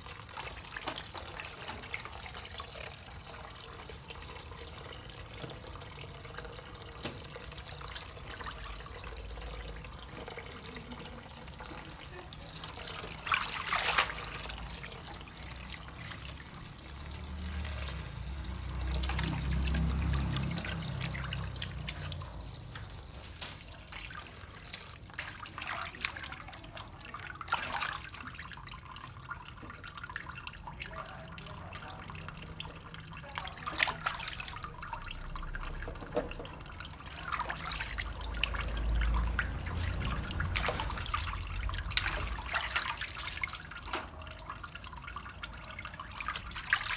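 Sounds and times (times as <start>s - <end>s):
tap water running into sink: 0.0s - 46.9s
vegetables splashing and knocking: 11.8s - 26.4s, 33.3s - 44.4s.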